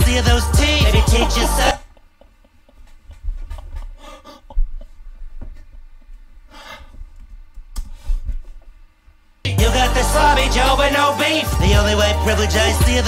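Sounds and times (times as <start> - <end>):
person breathing and gasping: 3.8 - 4.6, 6.5 - 7.1.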